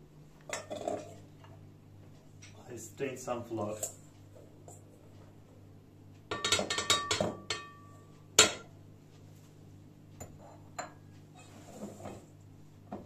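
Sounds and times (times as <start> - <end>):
clinks on steel mixing bowl: 6.3 - 8.7.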